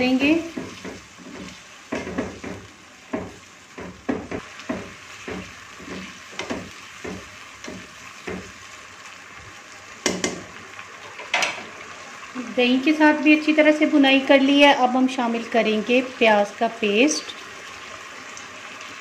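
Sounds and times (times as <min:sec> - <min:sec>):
meat sizzling in a pan: 0:00.0 - 0:19.0
spatula scraping a pan: 0:00.2 - 0:08.7.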